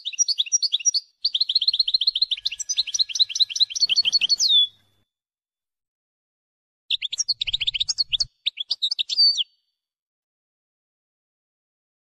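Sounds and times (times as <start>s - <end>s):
goldfinch song: 0.0s - 5.0s, 6.9s - 9.7s.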